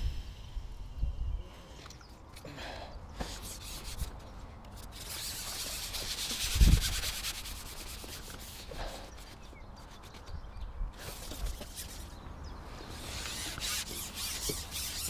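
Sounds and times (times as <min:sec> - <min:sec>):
rubbing scraping noise: 0:04.8 - 0:10.3, 0:12.8 - 0:15.0.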